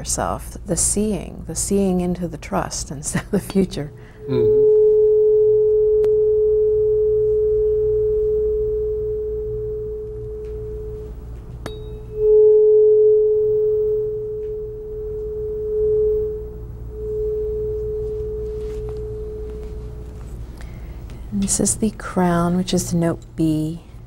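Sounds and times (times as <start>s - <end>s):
tuning fork ringing: 3.9s - 20.0s.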